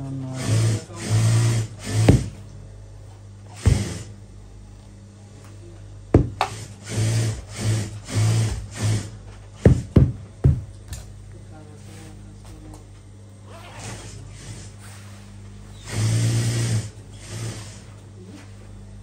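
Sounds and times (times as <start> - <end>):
steam iron hissing: 0.5 - 2.3
iron knocking on board: 2.0 - 2.4, 3.6 - 4.1, 6.1 - 6.6, 9.6 - 10.7.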